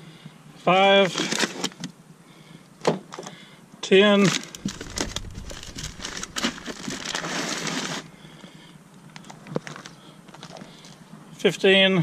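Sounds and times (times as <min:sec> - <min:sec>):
plastic bags crinkling: 0:04.3 - 0:08.1.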